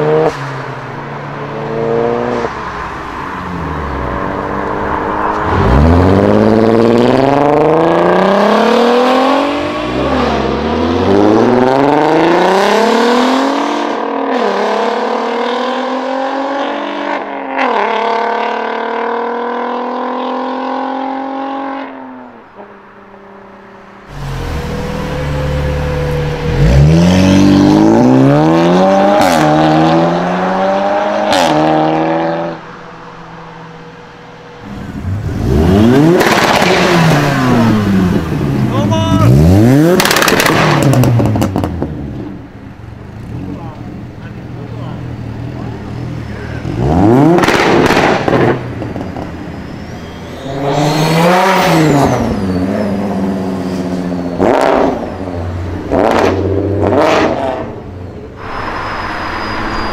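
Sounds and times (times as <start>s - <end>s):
car accelerating through gears: 3.5s - 22.0s, 24.0s - 32.6s, 34.6s - 42.4s, 45.5s - 49.4s, 50.0s - 59.9s
exhaust pops: 40.0s - 42.0s, 47.4s - 49.4s.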